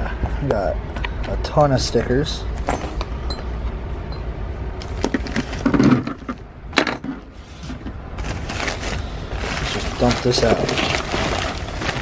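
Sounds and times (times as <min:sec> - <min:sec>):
paper rustling: 0:07.5 - 0:12.0.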